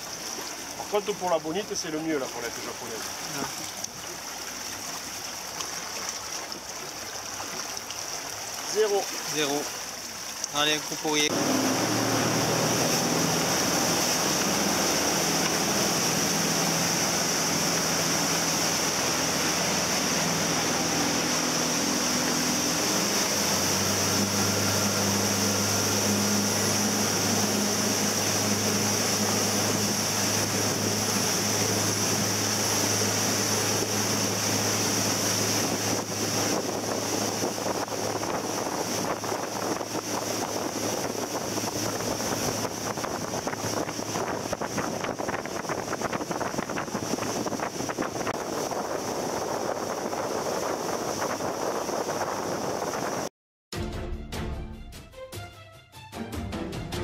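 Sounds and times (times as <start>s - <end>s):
churning wake water: 0.0s - 53.3s
motorboat engine hum: 0.0s - 53.3s
wind rushing: 11.3s - 53.3s.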